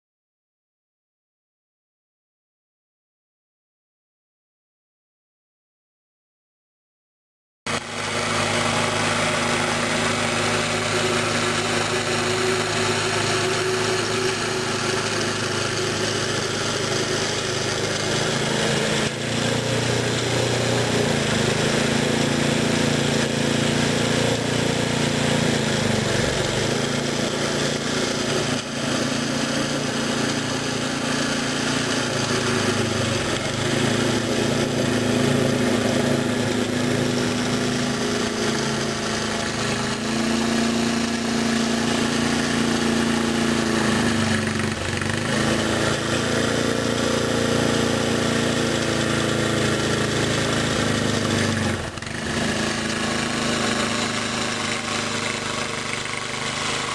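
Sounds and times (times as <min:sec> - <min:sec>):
snowblower engine running: 0:07.7 - 0:56.9.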